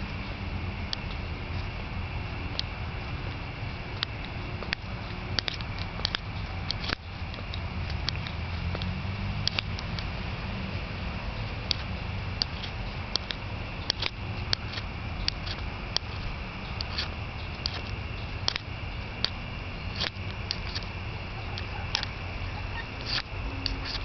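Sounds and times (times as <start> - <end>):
low rumble and hiss: 0.0 - 24.0
footsteps on concrete: 2.6 - 9.0, 11.7 - 24.0.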